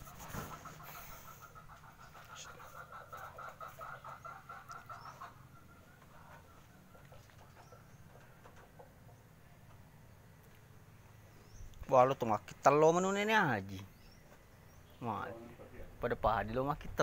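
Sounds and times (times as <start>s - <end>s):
chicken clucking: 0.0s - 9.8s.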